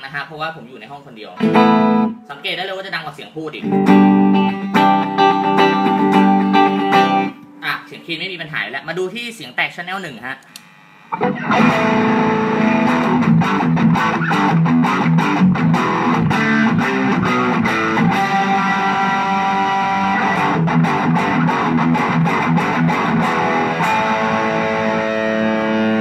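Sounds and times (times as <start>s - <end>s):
distorted electric guitar riff: 1.4s - 2.2s, 3.6s - 8.0s, 11.1s - 26.0s.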